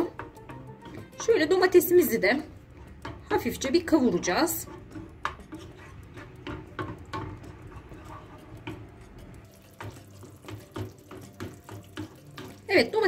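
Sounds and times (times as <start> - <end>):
wooden spoon stirring thick sauce: 0.0 - 13.0.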